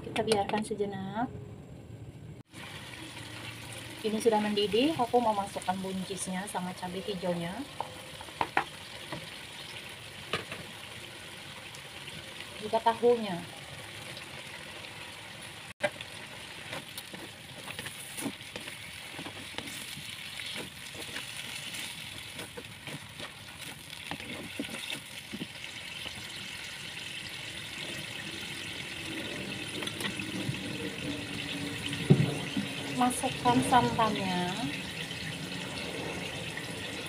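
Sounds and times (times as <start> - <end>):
food simmering in a wok: 2.4 - 37.0
spatula scraping a pan: 16.6 - 26.4
thump: 32.0 - 32.4.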